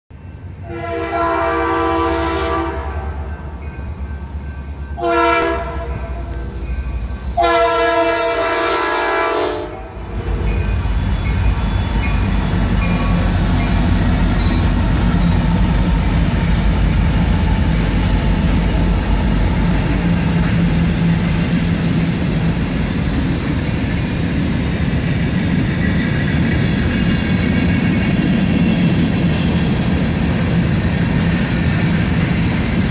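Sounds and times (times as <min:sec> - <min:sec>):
freight train rumble: 0:00.1 - 0:32.9
locomotive air horn blasts: 0:00.6 - 0:03.3, 0:05.0 - 0:06.3, 0:07.4 - 0:10.6.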